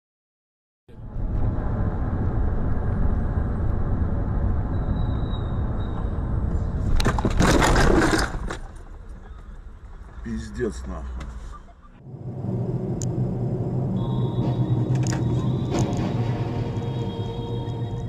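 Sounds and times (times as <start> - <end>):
car engine and road noise: 0.9 - 18.0
car crash: 6.8 - 9.0.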